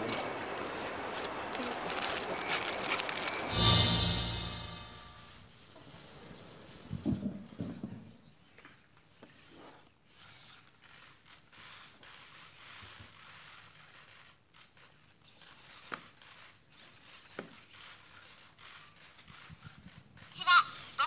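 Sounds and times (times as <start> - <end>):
robot servo motors whirring: 9.3 - 12.9.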